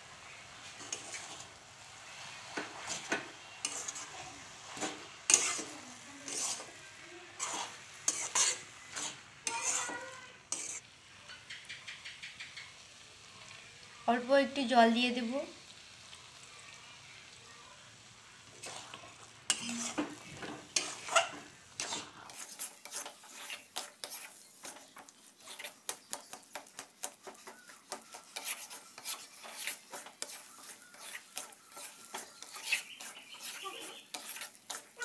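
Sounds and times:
spatula scraping a pan: 0.5 - 10.9, 18.4 - 35.0.

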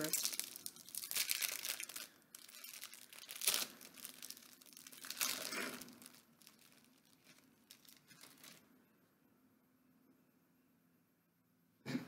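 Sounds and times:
cookie packet crinkling and tearing: 0.0 - 8.7.

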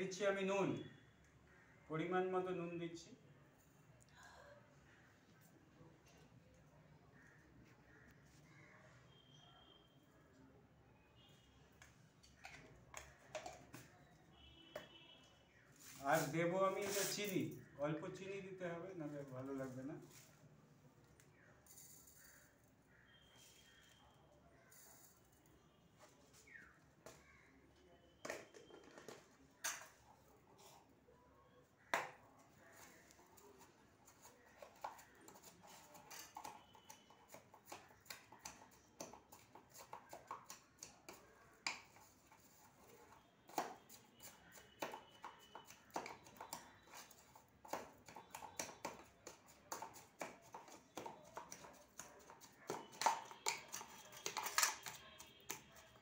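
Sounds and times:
spoon scraping in steel tumbler: 34.0 - 41.2, 41.8 - 56.0.

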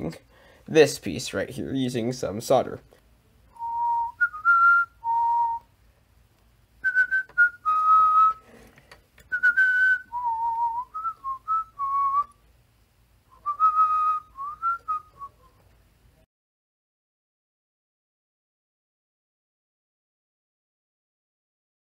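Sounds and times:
person whistling a tune: 3.5 - 5.7, 6.8 - 8.4, 9.3 - 12.4, 13.3 - 15.6.

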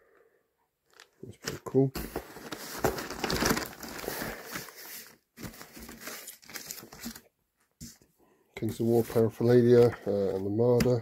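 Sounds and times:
scraping and shuffling: 0.9 - 7.2
cardboard and paper rustling: 0.9 - 8.0.

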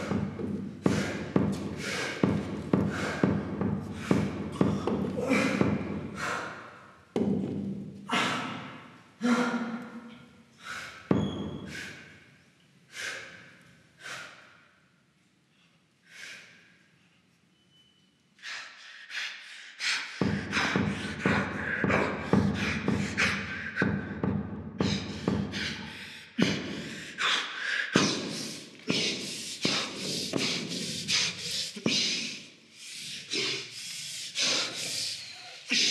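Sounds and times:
people panting and gasping: 0.0 - 9.9, 10.5 - 12.3, 12.9 - 14.7, 18.4 - 35.9.

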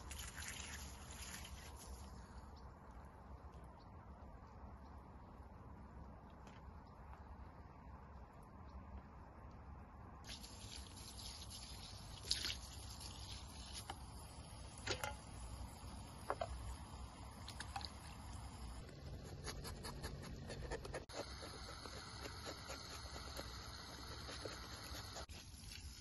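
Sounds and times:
wet dripping: 0.0 - 3.8, 10.3 - 18.5.

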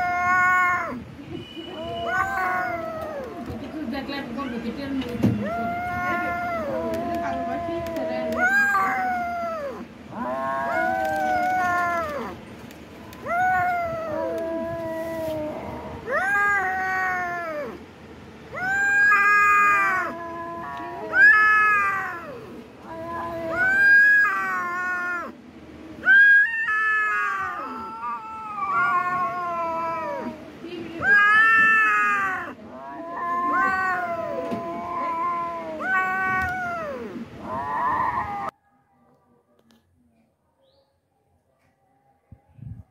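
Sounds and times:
kitten yowling: 0.0 - 1.0, 1.8 - 3.6, 5.4 - 12.4, 13.1 - 17.8, 18.5 - 25.4, 26.0 - 30.4, 31.0 - 38.5.

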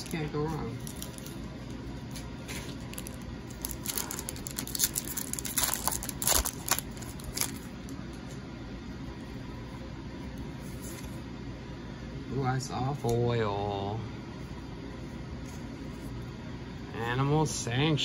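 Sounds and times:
foil wrapper tearing and crinkling: 0.0 - 8.0
steady low hum: 0.0 - 18.0.

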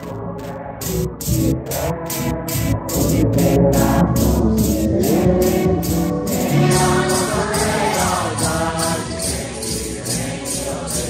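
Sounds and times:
rattles shaken on a beat: 0.8 - 11.0
congregation singing a hymn: 3.0 - 11.0.

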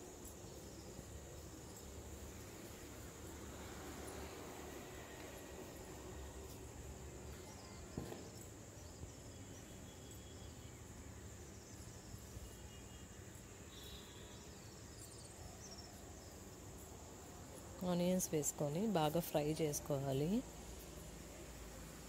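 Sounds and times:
seeds sizzling in oil: 0.0 - 16.9.

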